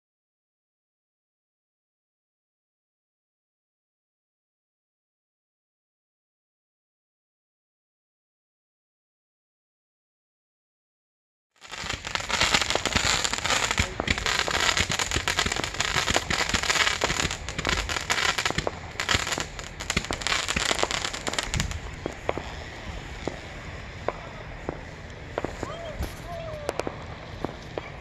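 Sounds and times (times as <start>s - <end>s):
fireworks crackling: 11.6s - 28.0s.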